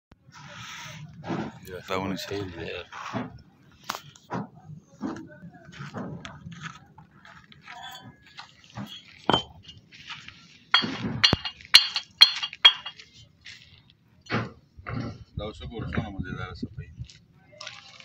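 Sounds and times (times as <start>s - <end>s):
bricks clinking together: 8.8s - 9.8s, 10.8s - 13.0s.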